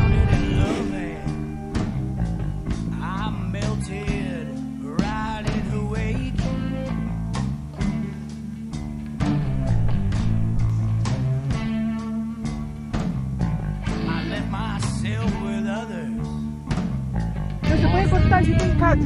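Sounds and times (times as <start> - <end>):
rock music with guitar: 0.0 - 19.0.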